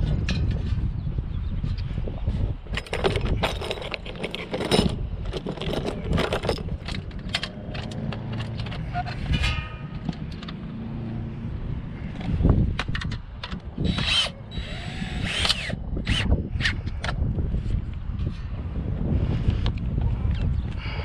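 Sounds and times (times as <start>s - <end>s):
steady low rumble: 0.0s - 21.0s
metal hardware clinking: 2.7s - 10.6s.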